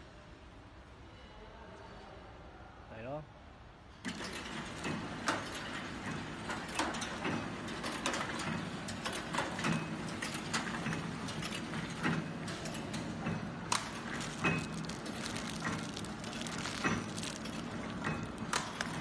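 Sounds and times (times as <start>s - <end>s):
sharp mechanical clicks and clacks: 4.0s - 19.0s
packing machine humming: 4.1s - 19.0s.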